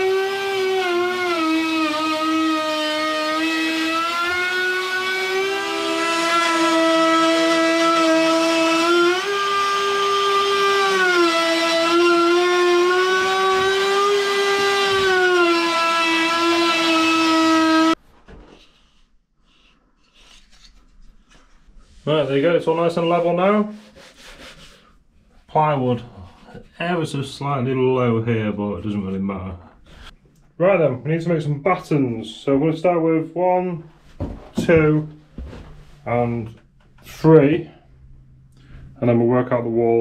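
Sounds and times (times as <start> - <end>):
router whining while cutting wood: 0.0 - 18.0.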